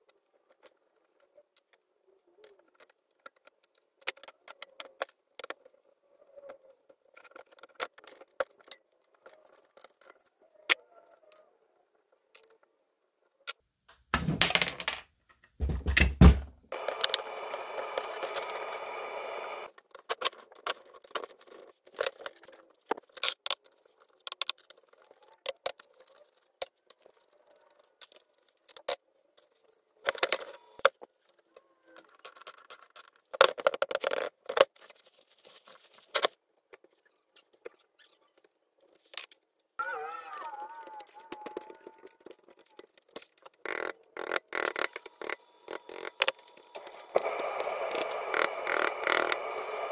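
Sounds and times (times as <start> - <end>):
power tool running: 16.8 - 19.7, 46.7 - 49.9.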